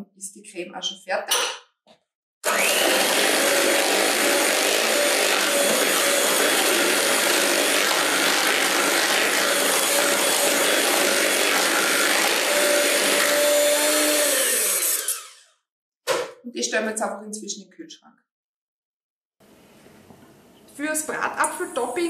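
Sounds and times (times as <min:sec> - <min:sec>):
electric mixer whipping cream: 0:02.4 - 0:15.5.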